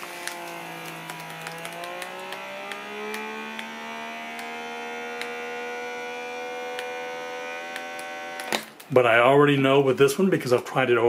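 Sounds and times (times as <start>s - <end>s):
vacuum pump humming: 0.0s - 8.8s.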